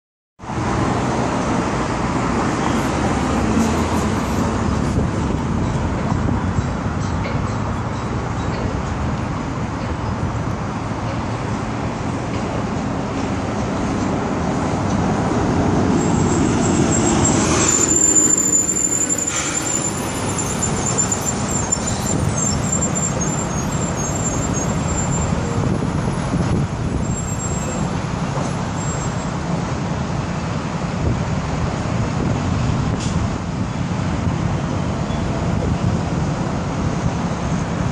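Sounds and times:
steady traffic hum: 0.4s - 37.9s
thin high whistle: 16.0s - 24.8s.

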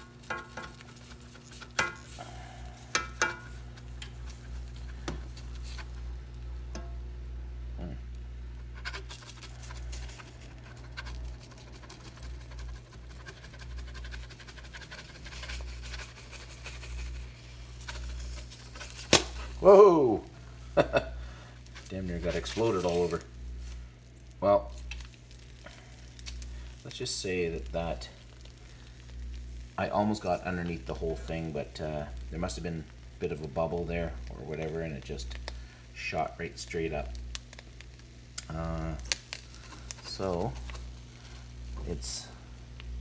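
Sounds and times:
spatula scraping frying pan: 0.0s - 6.0s, 8.5s - 19.5s.

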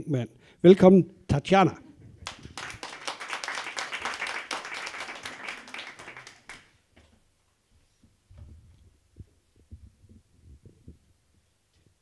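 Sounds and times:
audience applause: 2.2s - 6.8s.

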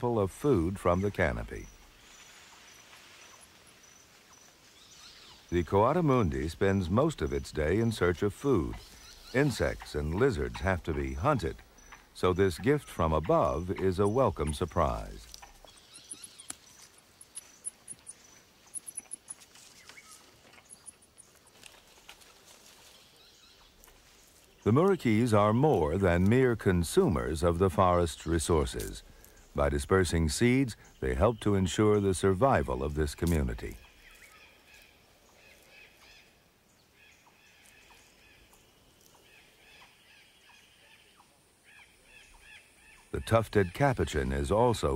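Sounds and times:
insects chirping: 0.0s - 44.9s
soft hiss: 0.9s - 12.4s
rustling in dry leaves: 1.3s - 5.5s, 13.5s - 30.5s, 31.7s - 40.2s
chirping animal calls: 5.1s - 21.4s.

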